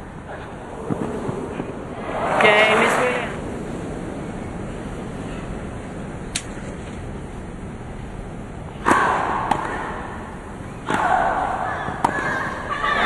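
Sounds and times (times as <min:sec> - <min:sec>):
tennis racket hitting ball: 0:08.8 - 0:10.2, 0:10.8 - 0:12.5
tennis ball bounce: 0:11.9 - 0:12.3.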